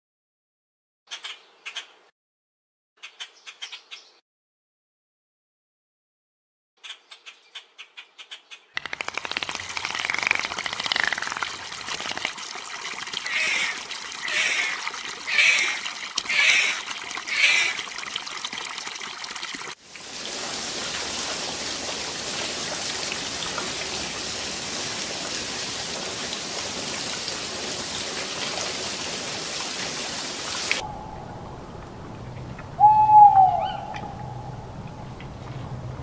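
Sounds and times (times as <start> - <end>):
rushing water-like noise: 8.8 - 17.9, 19.6 - 35.4
water splashing: 8.8 - 35.9
animal call: 32.8 - 34.7.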